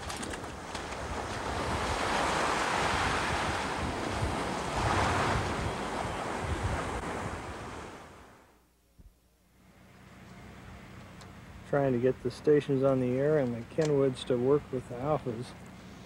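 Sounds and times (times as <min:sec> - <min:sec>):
wind buffeting microphone: 0:00.0 - 0:08.1
surf washing in on beach: 0:00.0 - 0:08.4.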